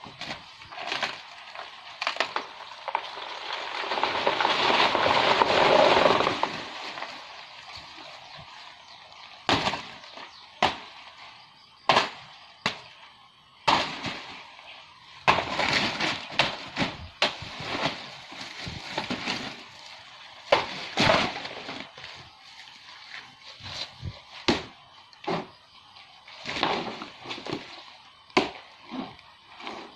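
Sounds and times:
banana plant cracking: 0:00.1 - 0:07.3
dry leaves rustling and crackling: 0:00.1 - 0:10.4, 0:15.3 - 0:24.8.

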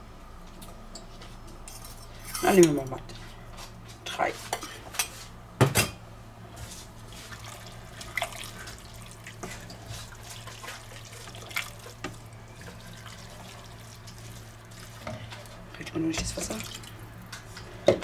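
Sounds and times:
steady low hum: 0:00.0 - 0:18.0
wooden spoon stirring wet food: 0:06.6 - 0:18.0.

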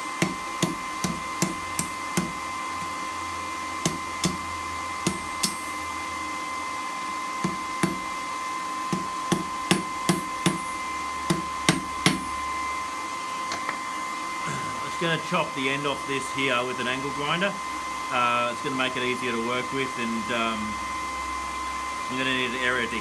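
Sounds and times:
steady high whine: 0:00.0 - 0:23.0
hammer striking hot steel on anvil: 0:00.2 - 0:02.9, 0:03.8 - 0:05.9, 0:07.4 - 0:08.2, 0:08.9 - 0:12.4.

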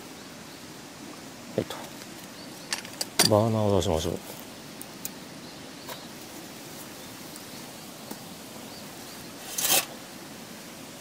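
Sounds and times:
outdoor background hiss: 0:00.0 - 0:11.0
camping gear rustling: 0:09.3 - 0:10.0.

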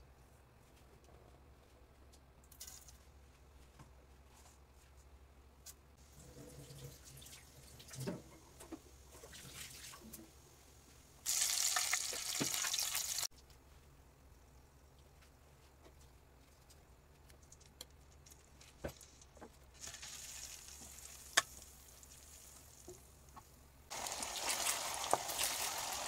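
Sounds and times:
loud sizzle: 0:11.2 - 0:13.3, 0:19.8 - 0:26.0
seeds crackling in hot oil: 0:11.2 - 0:13.4, 0:18.2 - 0:26.0.

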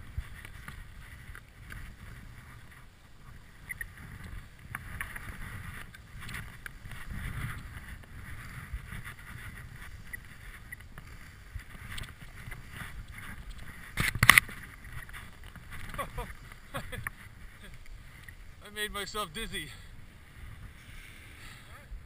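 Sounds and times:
wind on microphone: 0:00.0 - 0:22.0
skis hissing through snow: 0:14.5 - 0:21.8.

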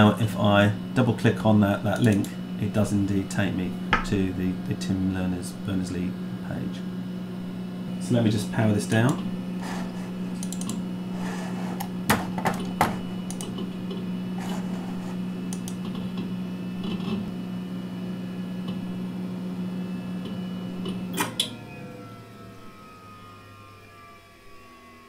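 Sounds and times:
computer hum: 0:00.0 - 0:25.0
falling whine of spinning down: 0:21.5 - 0:25.0.

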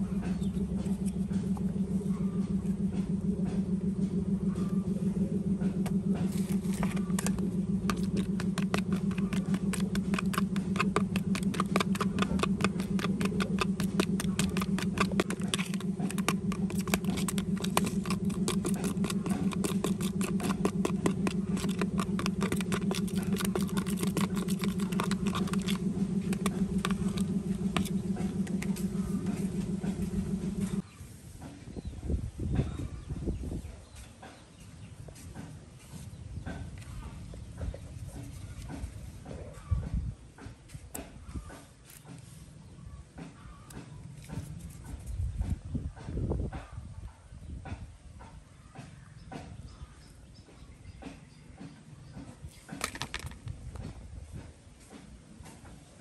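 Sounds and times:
motor hum: 0:00.0 - 0:46.7
knife clicking and scraping in tub: 0:06.6 - 0:29.5.

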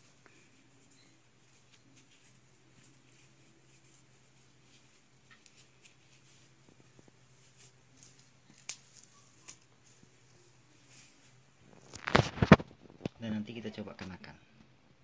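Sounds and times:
rustling of cycling jersey: 0:00.0 - 0:13.2.

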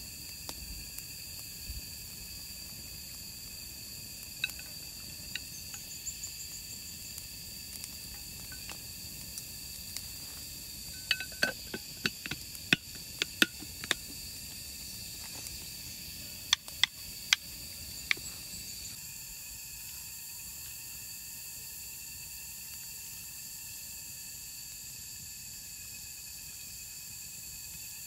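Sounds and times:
campfire crackles and pops: 0:00.0 - 0:18.7
insect chorus: 0:00.0 - 0:28.0.

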